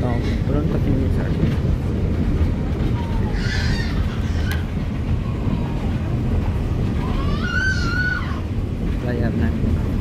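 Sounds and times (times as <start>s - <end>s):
bus engine and road rumble: 0.0s - 10.0s.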